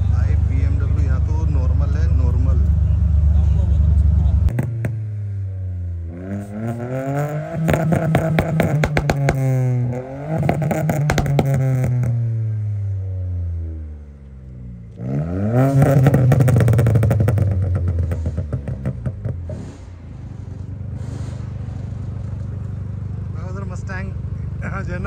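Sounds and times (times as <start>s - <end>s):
car engine revving: 0.0s - 25.0s
exhaust crackling: 0.0s - 25.0s.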